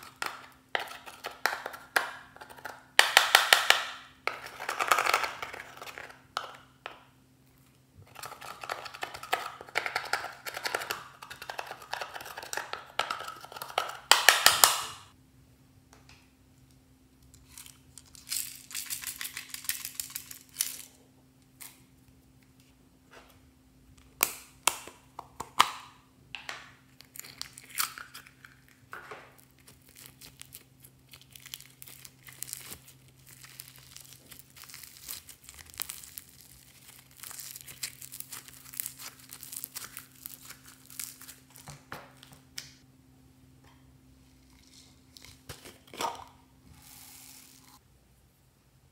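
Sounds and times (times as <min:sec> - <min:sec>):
slime crackling and popping: 0:27.0 - 0:42.8.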